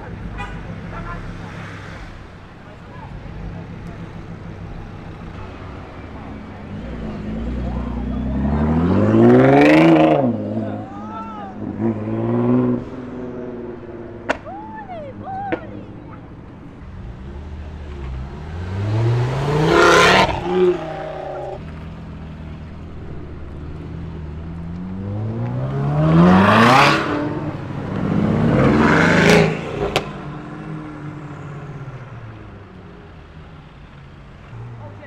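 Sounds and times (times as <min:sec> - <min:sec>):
car engines revving hard: 0:00.0 - 0:14.4, 0:15.1 - 0:35.0
sharp crack: 0:14.2 - 0:14.6.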